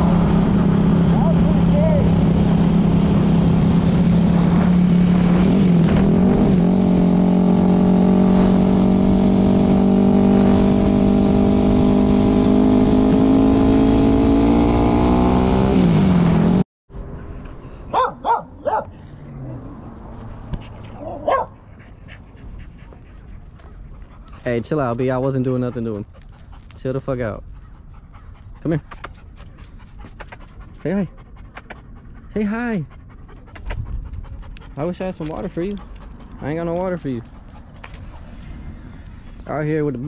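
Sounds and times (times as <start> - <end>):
dog barking: 17.9 - 18.9, 20.9 - 21.6.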